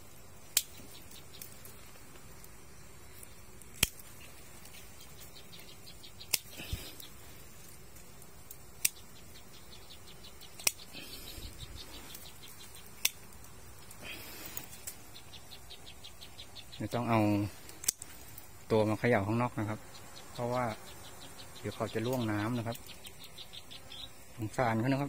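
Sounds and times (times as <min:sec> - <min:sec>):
insects chirring: 0:00.0 - 0:25.0
hand shears snipping twigs: 0:00.5 - 0:01.7, 0:03.6 - 0:05.3, 0:06.2 - 0:07.1, 0:08.5 - 0:09.0, 0:10.4 - 0:11.2, 0:12.0 - 0:15.0, 0:17.6 - 0:18.4.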